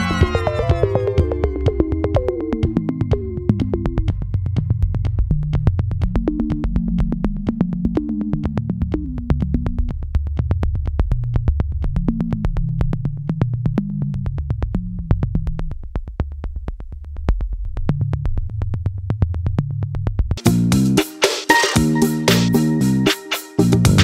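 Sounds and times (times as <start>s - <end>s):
synthesizer bass line: 0.0s - 9.9s, 20.4s - 24.0s
drum-machine beat: 0.0s - 15.7s, 20.3s - 24.0s.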